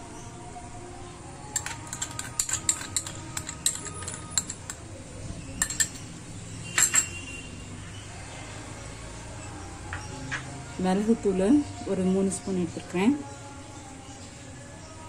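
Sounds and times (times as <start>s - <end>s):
metal spoon clinking on cookware: 1.6s - 7.4s.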